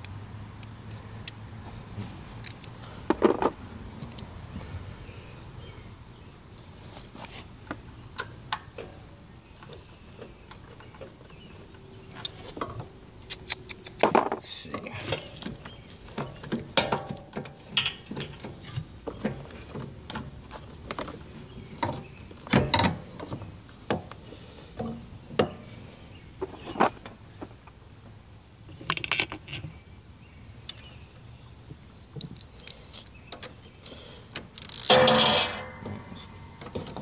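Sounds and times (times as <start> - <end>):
clicks and knocks of metal tools: 12.2 - 21.2, 34.4 - 37.0.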